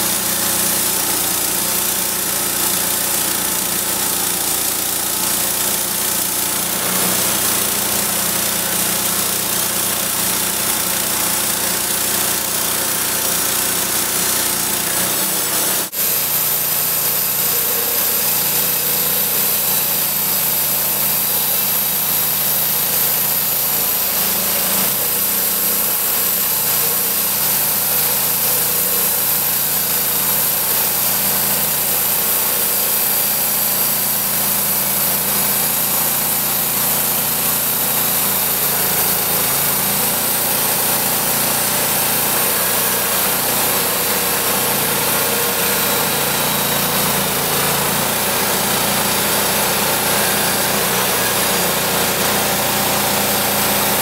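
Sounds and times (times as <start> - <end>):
band sawmill cutting wood: 0.0 - 54.0.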